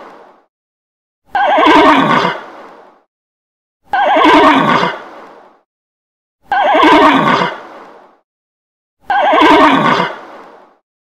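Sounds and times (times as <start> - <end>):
horse whinnying: 1.3 - 2.4, 3.9 - 5.0, 6.5 - 7.6, 9.1 - 10.2.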